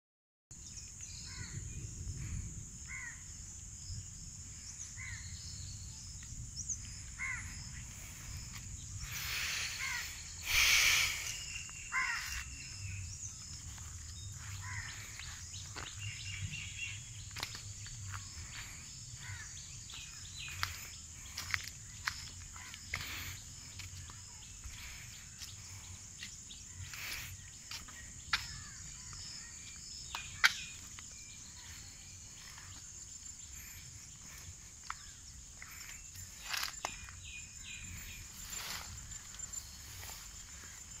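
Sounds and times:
wind rumble on microphone: 0.6 - 11.4, 12.5 - 23.7
high-pitched insect drone: 0.8 - 41.0
crow cawing: 2.9 - 3.2, 7.2 - 7.6, 9.7 - 12.5, 14.5 - 15.2, 19.2 - 19.6, 22.5 - 23.0
bird calls: 4.7 - 41.0.

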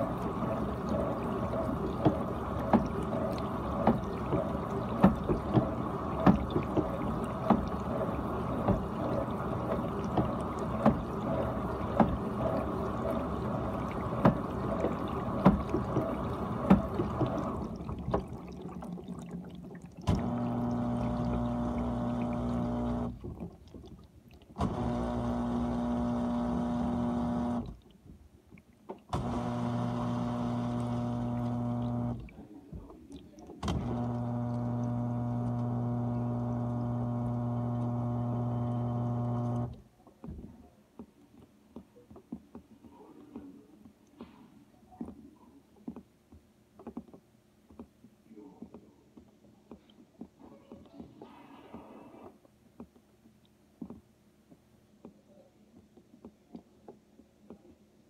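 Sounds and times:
pump motor humming: 0.0 - 23.6, 24.5 - 27.8, 29.1 - 32.5, 33.6 - 39.8
water sloshing and spraying: 0.0 - 28.0, 28.8 - 39.9.

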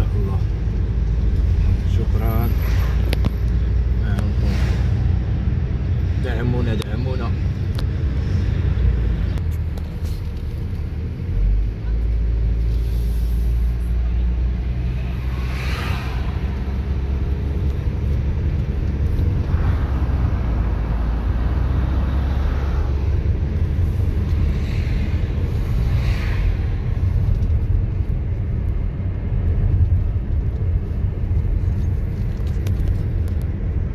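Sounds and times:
car engine and tyres rumbling: 0.0 - 33.9.

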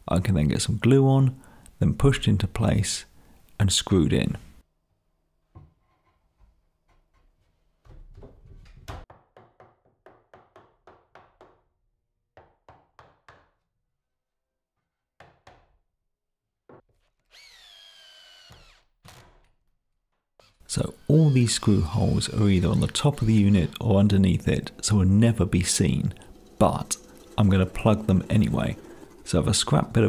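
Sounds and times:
hammer knocking on wood: 7.9 - 11.6
drill motor whining: 17.3 - 19.0, 20.6 - 30.0.

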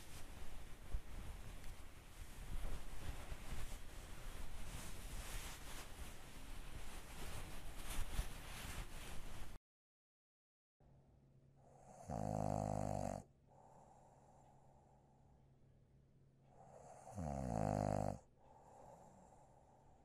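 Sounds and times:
person snoring: 11.7 - 13.8, 16.6 - 19.4.

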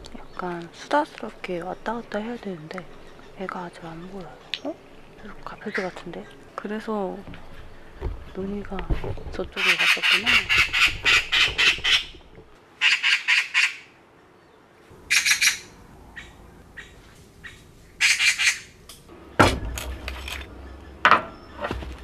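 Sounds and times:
bird chattering calls: 9.5 - 12.2, 12.8 - 13.9, 15.1 - 18.8
loud thump: 19.4 - 20.1.

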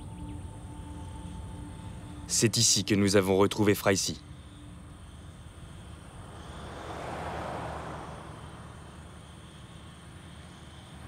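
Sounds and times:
insect chirring: 0.0 - 11.0
vehicle passing: 4.2 - 11.0.

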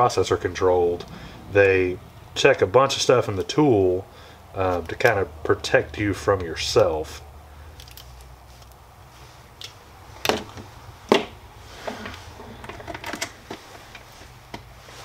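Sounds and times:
sharp clicks and taps of small parts: 7.7 - 8.8.

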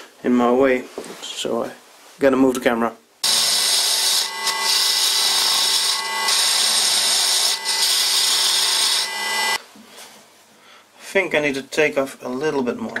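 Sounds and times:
metal lathe cutting: 3.2 - 9.6.

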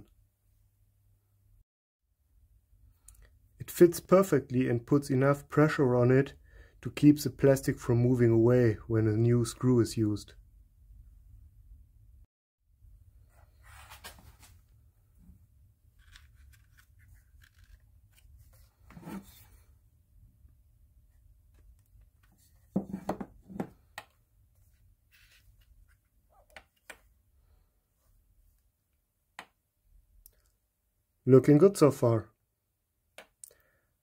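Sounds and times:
plastic scraping and rubbing: 16.0 - 19.7.

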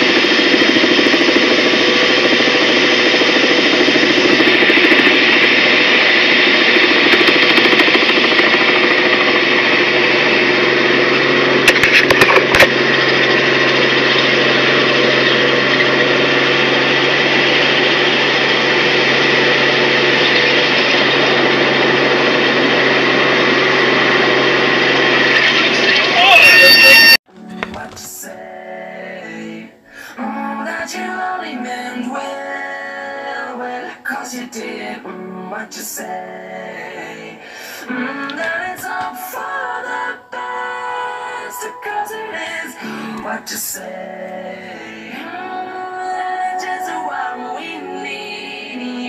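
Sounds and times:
helicopter engine and rotor drone: 0.0 - 27.2.

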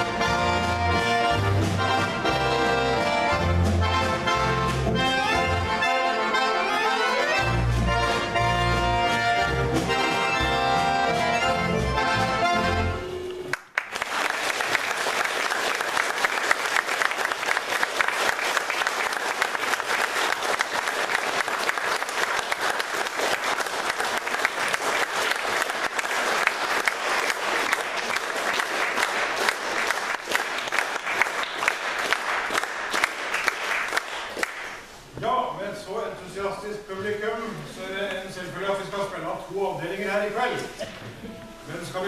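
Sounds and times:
audience applauding: 13.2 - 34.9.

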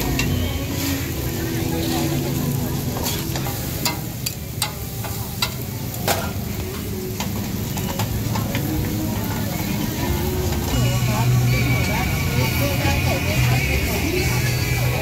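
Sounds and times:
meat sizzling on a griddle: 0.0 - 15.0.

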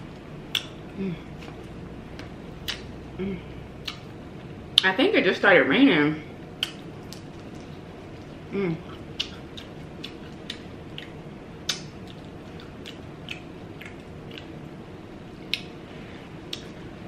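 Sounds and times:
person chewing: 3.8 - 4.2, 6.6 - 14.6, 16.4 - 16.8.

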